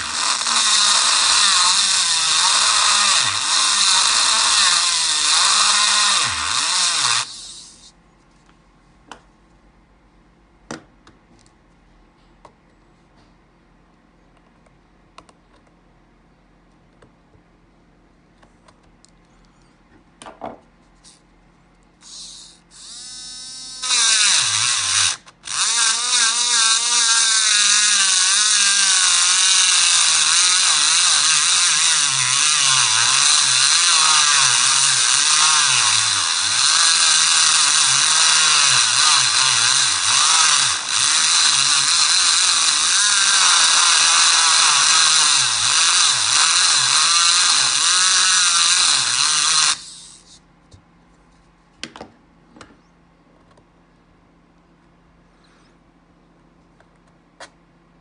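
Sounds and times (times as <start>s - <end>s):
electric engraving pen buzzing: 0.0s - 7.9s, 22.0s - 50.4s.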